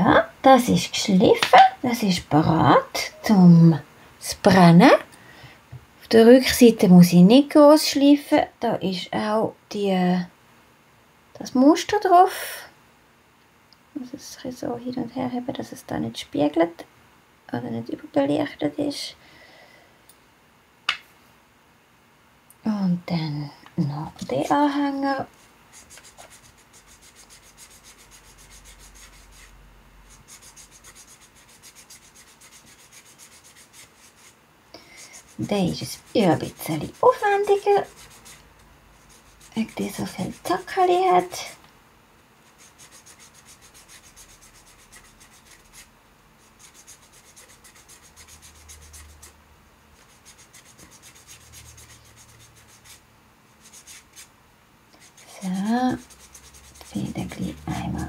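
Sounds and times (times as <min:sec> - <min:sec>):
sanding sponge rubbing clay: 0:25.2 - 0:34.4, 0:35.0 - 0:41.5, 0:42.4 - 0:49.4, 0:50.0 - 0:53.0, 0:53.6 - 0:54.3, 0:55.0 - 0:58.0.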